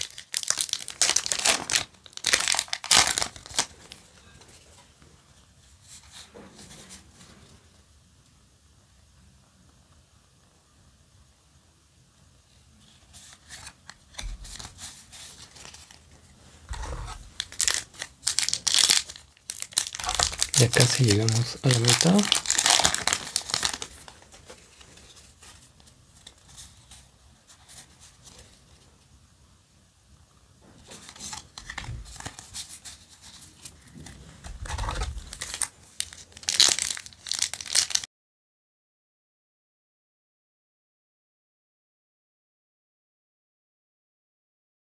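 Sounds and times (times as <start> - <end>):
foil pack crinkling: 0.0 - 4.1, 16.7 - 25.6, 30.9 - 33.7, 34.4 - 38.1
trading cards rustling: 0.0 - 4.7, 13.1 - 16.1, 16.7 - 28.4, 30.9 - 38.0.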